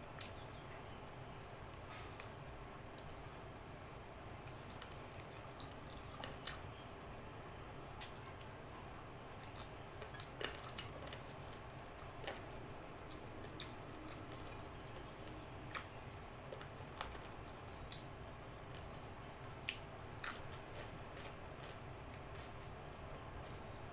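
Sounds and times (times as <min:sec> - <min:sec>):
chewing with wet mouth clicks: 0:04.4 - 0:06.8, 0:09.4 - 0:23.7.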